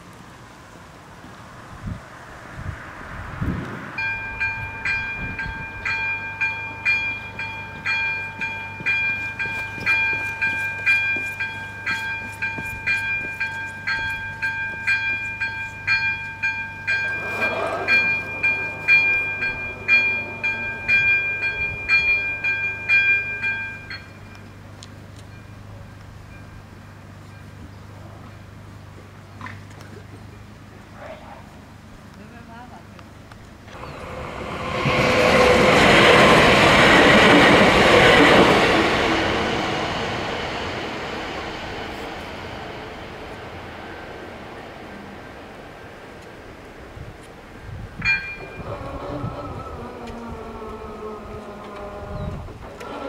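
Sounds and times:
level-crossing warning bell ringing: 4.0s - 29.0s, 33.7s - 47.0s, 47.9s - 52.0s.

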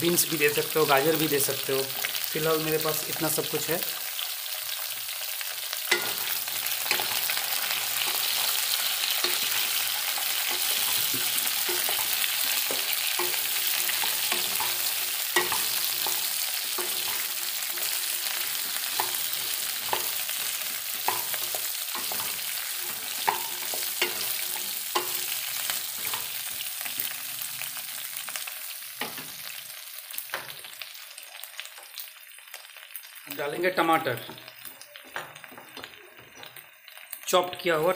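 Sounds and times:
vegetables sizzling in hot oil: 0.0s - 37.9s
wooden spatula knocking pan: 10.4s - 25.4s.

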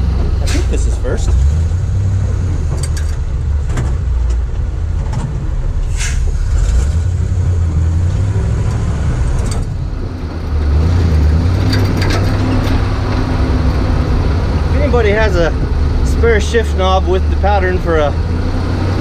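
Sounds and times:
truck engine low rumble: 0.0s - 19.0s
clicks and rattles: 2.7s - 5.3s, 11.0s - 13.8s.

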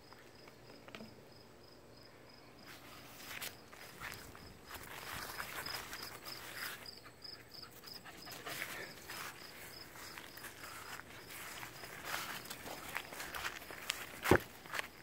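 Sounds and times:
insect chirping: 0.0s - 15.0s
footsteps swishing through grass: 2.7s - 6.9s, 8.5s - 15.0s.

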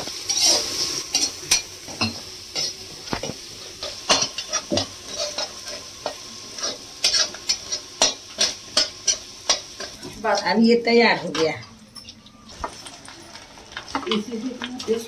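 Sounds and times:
paste sizzling in hot oil: 0.0s - 15.0s
metal spatula scraping steel pan: 0.2s - 2.8s, 3.8s - 10.6s.

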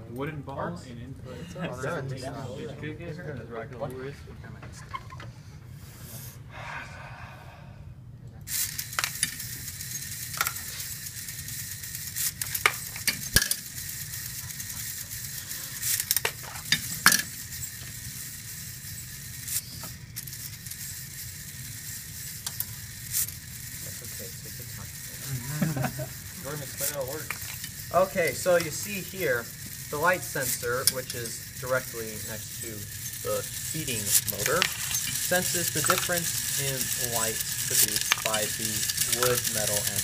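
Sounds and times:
balls clicking in metal frame: 8.5s - 40.0s
steady hiss: 8.5s - 40.0s.

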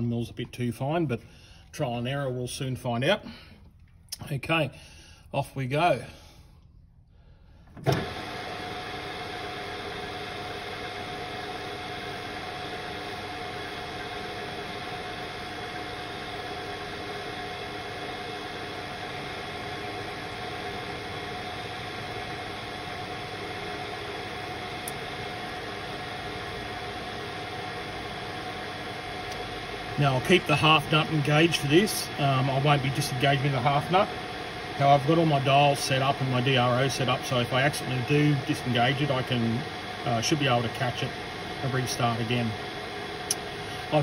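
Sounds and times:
lathe starting knock: 7.8s - 8.7s
lathe humming and whining: 7.8s - 44.0s.

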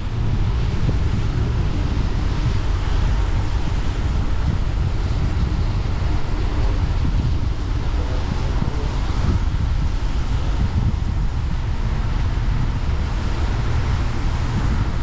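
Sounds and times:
car road noise: 0.0s - 15.0s
wind buffeting microphone: 0.0s - 15.0s.

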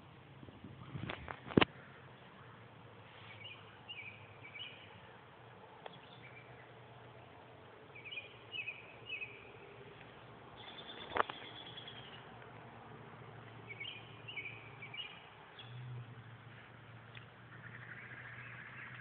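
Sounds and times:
small bird chirps: 3.2s - 5.0s, 7.9s - 9.8s, 10.6s - 12.3s, 13.6s - 16.0s.

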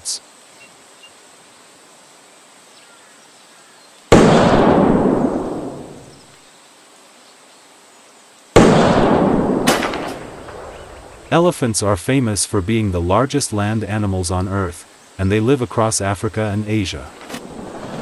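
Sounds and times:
rifle shots with rolling echo: 4.1s - 6.1s, 8.6s - 11.3s.

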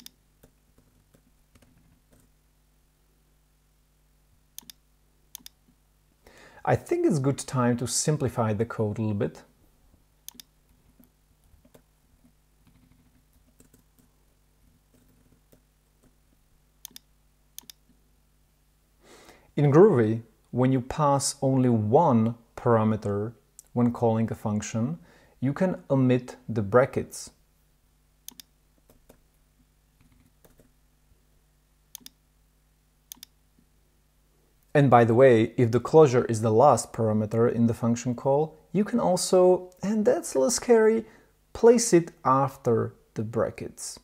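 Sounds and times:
computer mouse clicks: 0.0s - 2.3s, 4.6s - 5.6s, 10.3s - 11.8s, 16.8s - 18.0s, 28.3s - 29.2s, 31.9s - 32.2s, 33.1s - 33.4s
computer keyboard typing: 12.7s - 14.1s, 14.9s - 16.2s, 30.0s - 30.7s.

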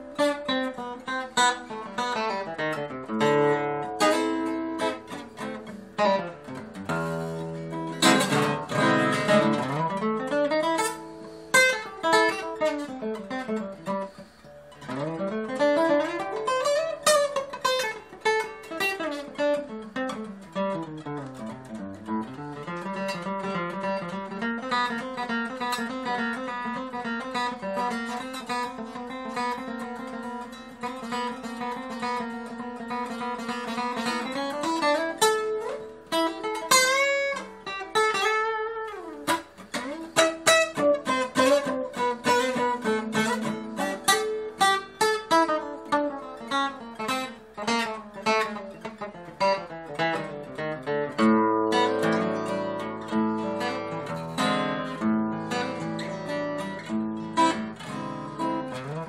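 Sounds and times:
fingerpicked acoustic guitar: 0.0s - 59.0s.

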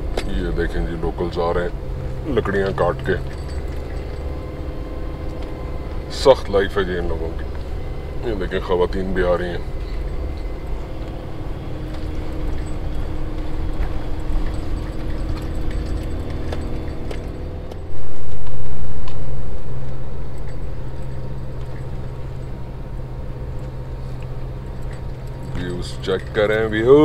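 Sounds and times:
car engine: 0.0s - 27.0s
road noise: 0.0s - 27.0s
small rattles and clicks: 9.7s - 19.2s
loud low rumble: 17.8s - 26.8s.

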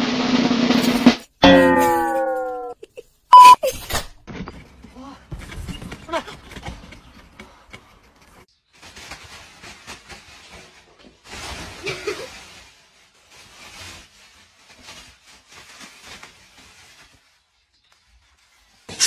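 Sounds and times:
plastic bag rustling: 4.5s - 18.9s.

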